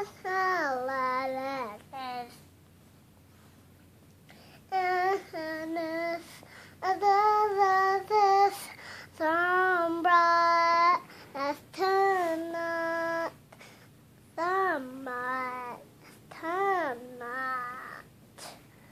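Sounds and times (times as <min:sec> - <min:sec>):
girl singing long notes: 0:04.7 - 0:13.4, 0:14.4 - 0:18.1.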